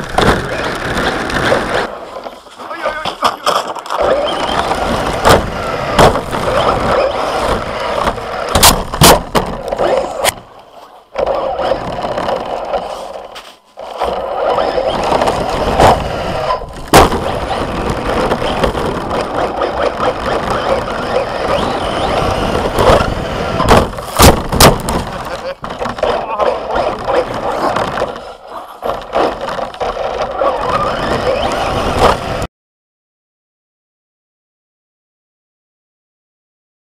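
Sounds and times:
rc car tyres rushing: 0.0 - 32.5
sharp knocks from bumps: 2.9 - 10.5, 16.7 - 30.3.

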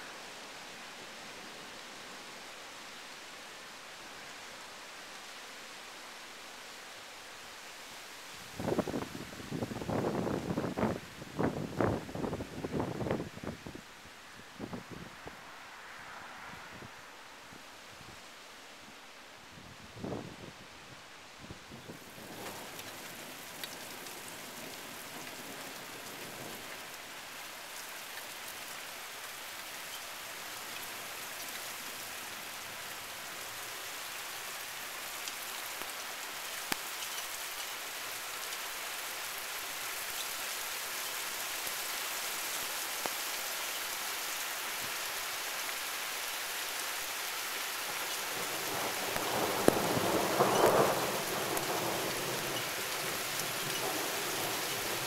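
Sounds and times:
heavy rain falling: 0.0 - 13.8, 21.9 - 55.0.

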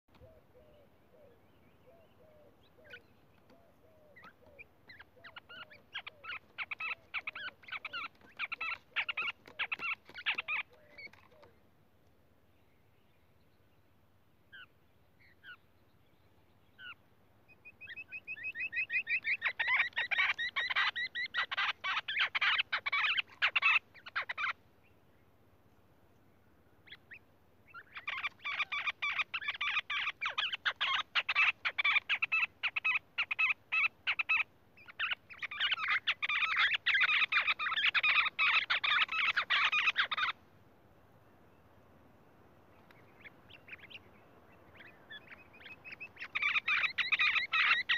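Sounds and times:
bird chirping: 0.1 - 11.7, 12.4 - 25.4, 26.1 - 40.4, 41.0 - 47.9
bird chattering calls: 1.9 - 11.5, 17.8 - 24.6, 26.8 - 40.4, 42.9 - 47.9.

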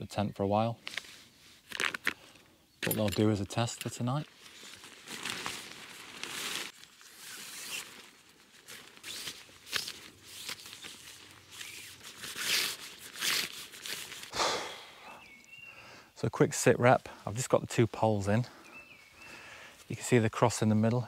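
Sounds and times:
tent fabric rustling: 4.0 - 14.4.

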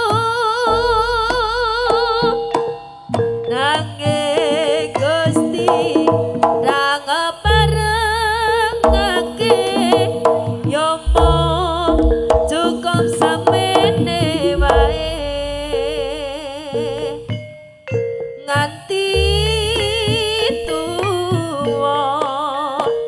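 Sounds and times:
gamelan-style ensemble: 0.0 - 23.0
high wavering melody: 0.4 - 5.2, 7.4 - 17.4
deep drum strokes: 8.8 - 17.1.

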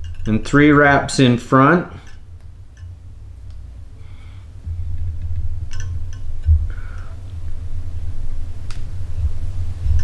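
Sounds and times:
handling noise rumble: 0.0 - 10.0.

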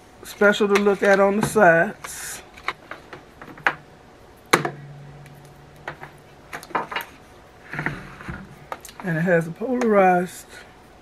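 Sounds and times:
low steady hum: 0.0 - 11.0
appliance housing knocks: 4.5 - 7.1.

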